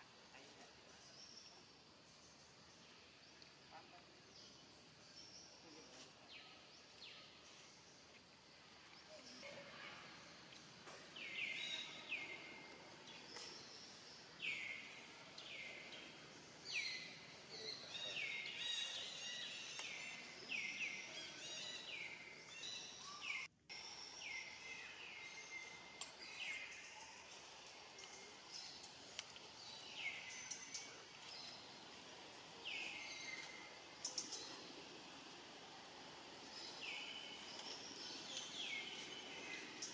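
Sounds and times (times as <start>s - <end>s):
faint clicks: 27.6s - 29.5s.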